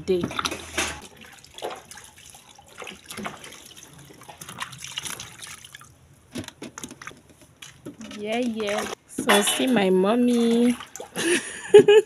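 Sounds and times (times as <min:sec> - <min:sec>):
water sloshing in a plastic bucket: 0:00.0 - 0:11.2
small splashes and drips: 0:00.2 - 0:06.0, 0:06.8 - 0:09.0, 0:10.3 - 0:11.2.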